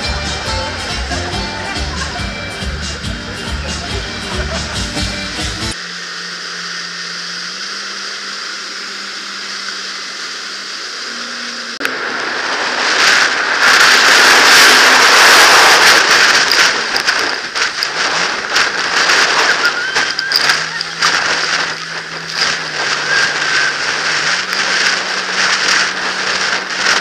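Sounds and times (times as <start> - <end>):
hull rushing on water: 0.0 - 27.0
watercraft engine humming: 0.0 - 27.0
spray splashing: 5.7 - 27.0.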